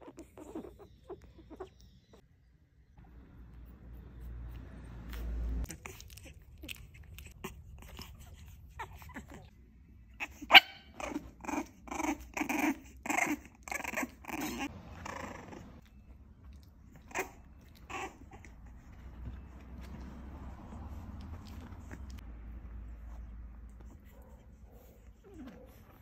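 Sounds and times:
puppies yapping: 0:00.0 - 0:02.2, 0:10.2 - 0:22.2.

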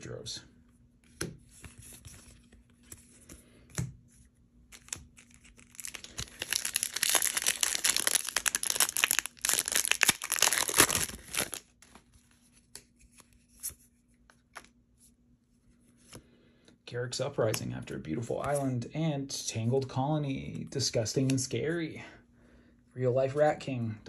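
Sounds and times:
foil wrapper tearing and crinkling: 0:04.8 - 0:11.7.

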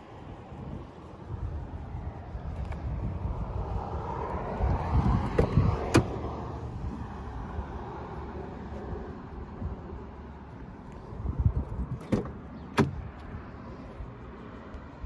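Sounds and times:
steady low rumble: 0:00.0 - 0:15.0
car door handle and latch clicks: 0:05.2 - 0:06.2, 0:11.6 - 0:13.4.

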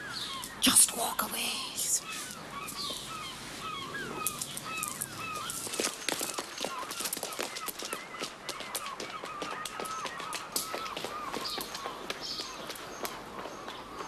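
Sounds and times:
birds calling: 0:00.0 - 0:14.0
footsteps on cobblestones: 0:04.6 - 0:14.0.

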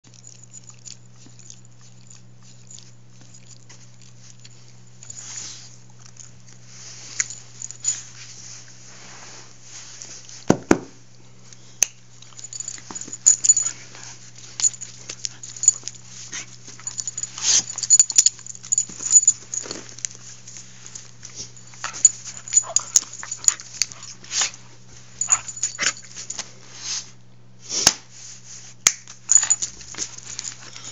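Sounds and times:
steady low hum: 0:00.0 - 0:30.9
dog scuffling and mouthing: 0:12.0 - 0:27.1, 0:28.4 - 0:30.9.

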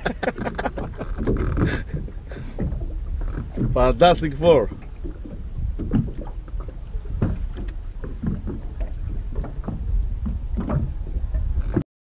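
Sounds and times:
low rumble of wind: 0:00.0 - 0:11.8
small waves slapping a boat: 0:00.0 - 0:11.8.

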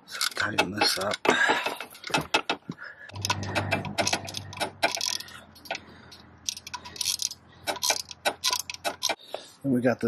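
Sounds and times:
hand ratchet clicking: 0:03.1 - 0:05.8, 0:06.4 - 0:09.2.

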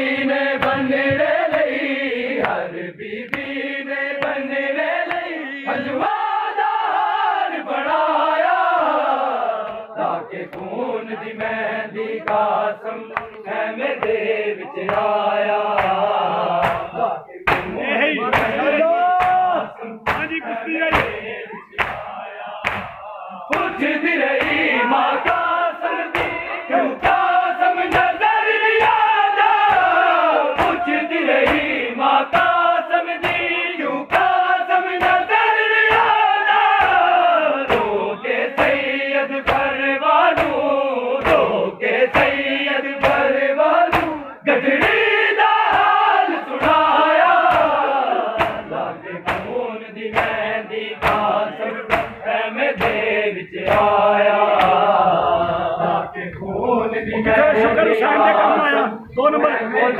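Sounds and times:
men chanting a lament: 0:00.0 - 0:59.9
hands striking chests: 0:15.7 - 0:23.8, 0:26.1 - 0:27.3, 0:46.6 - 0:50.4, 0:51.0 - 0:52.2.

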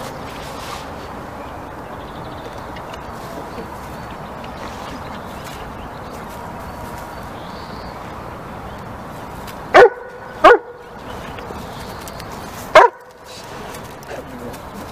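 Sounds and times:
dog barking: 0:09.7 - 0:10.8, 0:12.7 - 0:13.1.

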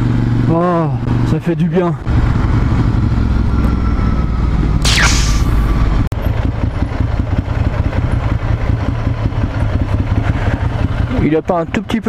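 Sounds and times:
brief high falling sound: 0:04.8 - 0:06.0
motorcycle engine running: 0:05.7 - 0:11.3.

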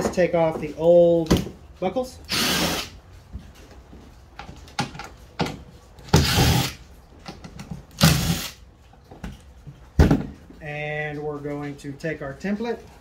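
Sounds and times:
tool handling clicks and knocks: 0:00.0 - 0:01.8, 0:03.4 - 0:06.3, 0:07.1 - 0:08.0, 0:08.8 - 0:10.6
impact driver running: 0:02.3 - 0:02.9, 0:06.2 - 0:06.8, 0:08.0 - 0:08.6.

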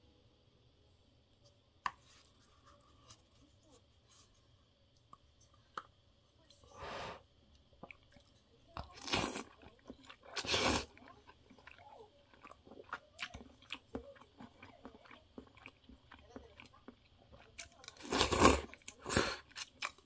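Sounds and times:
person chewing with wet clicks: 0:07.5 - 0:20.0.

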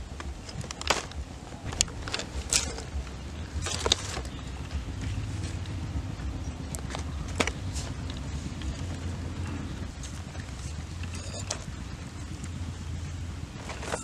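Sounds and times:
leaves crackling: 0:00.0 - 0:14.0
steady low rumble: 0:00.0 - 0:14.0.

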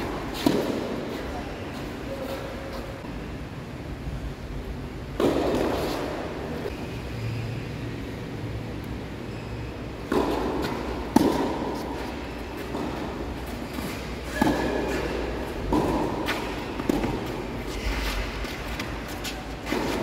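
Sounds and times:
tennis ball bouncing on court: 0:00.0 - 0:01.2, 0:05.2 - 0:06.2, 0:10.0 - 0:20.0
tennis ball struck by racket: 0:00.2 - 0:01.0, 0:05.2 - 0:06.2, 0:10.0 - 0:20.0.

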